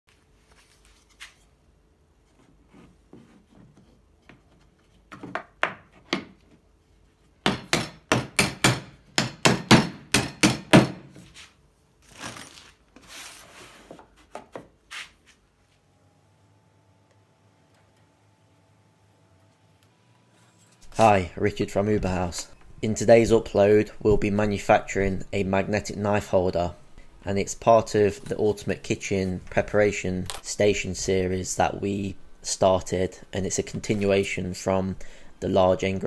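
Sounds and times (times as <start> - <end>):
hammer striking wooden board: 7.4 - 11.1.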